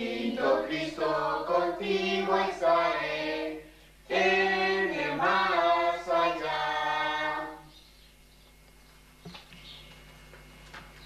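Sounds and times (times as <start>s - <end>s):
unaccompanied voices singing a hymn: 0.0s - 7.8s.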